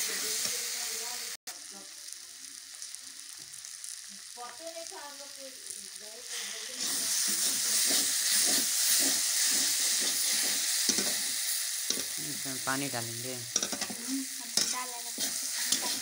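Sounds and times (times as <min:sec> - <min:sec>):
vegetables sizzling in oil: 0:00.0 - 0:16.0
spatula scraping a pan: 0:06.3 - 0:12.2, 0:13.5 - 0:16.0.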